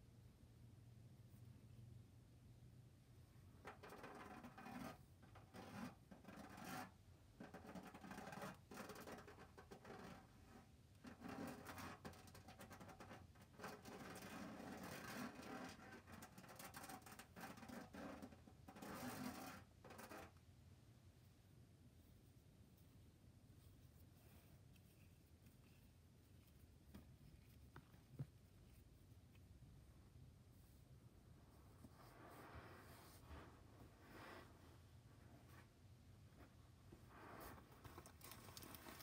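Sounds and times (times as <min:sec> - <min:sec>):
rubber ball scratchy rustle: 0:03.7 - 0:20.4.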